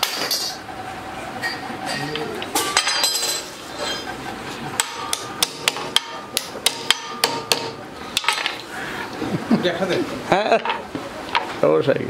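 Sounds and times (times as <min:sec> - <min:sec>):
hand hammer blows ringing: 0:04.8 - 0:07.8.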